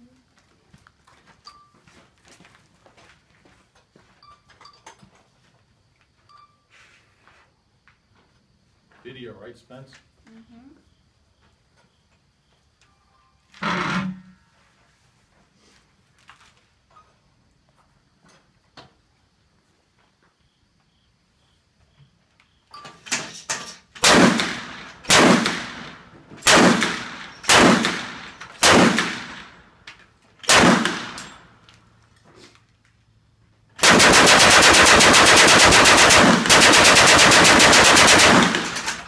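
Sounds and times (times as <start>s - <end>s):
gatling gun firing: 24.0s - 29.4s, 30.5s - 31.3s, 33.8s - 39.0s.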